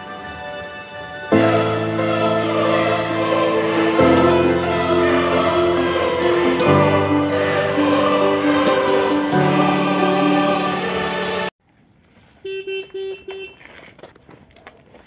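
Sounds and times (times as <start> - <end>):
choir singing sustained chords: 0.0 - 11.6.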